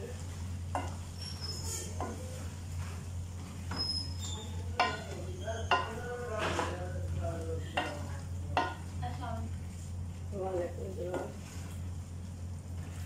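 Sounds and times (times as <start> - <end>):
faint sizzle: 0.0 - 13.0
steady low hum: 0.0 - 13.0
wooden spoon knocking a pot: 0.7 - 1.2, 1.9 - 2.2, 4.7 - 7.0, 7.7 - 9.0, 11.0 - 11.4.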